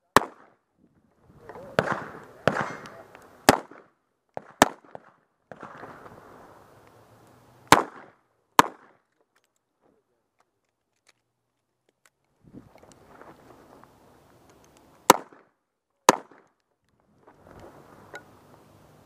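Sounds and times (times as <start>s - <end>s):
pistol shots: 0.1s - 0.6s, 1.7s - 5.9s, 7.7s - 9.0s, 15.0s - 15.5s, 16.1s - 16.5s
faint gunshot pops: 1.7s - 5.8s.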